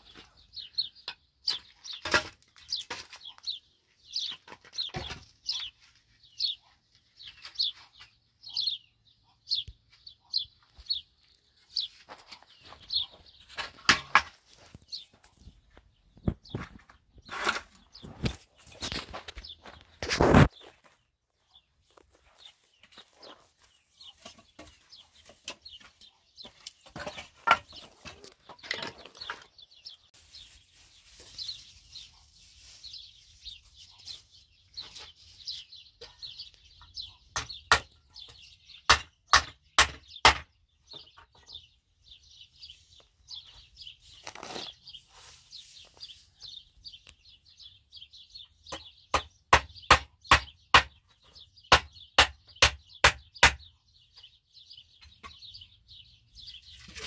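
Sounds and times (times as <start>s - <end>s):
small birds chirping: 0.0s - 57.0s
hand tool striking wooden boards: 13.6s - 14.4s, 37.3s - 41.5s, 48.7s - 51.1s, 51.7s - 53.7s.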